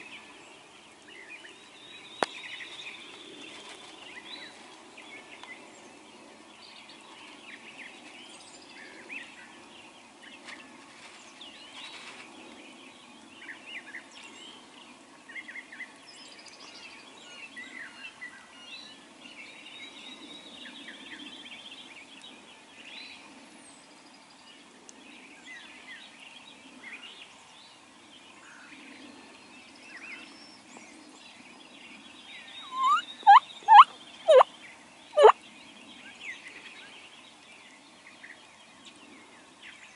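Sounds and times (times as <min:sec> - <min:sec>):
songbirds chirping: 0:00.0 - 0:39.9
turkey gobbling: 0:32.7 - 0:34.4.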